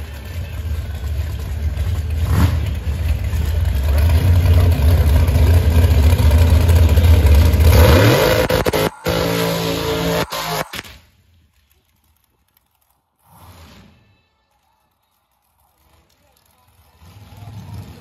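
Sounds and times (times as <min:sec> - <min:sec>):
dragster engine rumbling and revving: 0:00.1 - 0:10.9.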